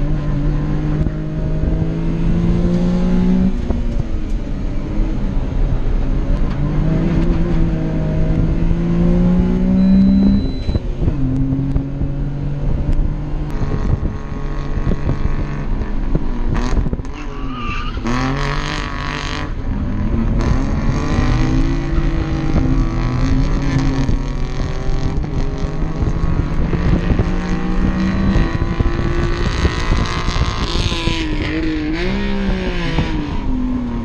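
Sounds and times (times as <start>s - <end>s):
road and wind noise: 0.0s - 34.0s
small car engine revving: 6.5s - 34.0s.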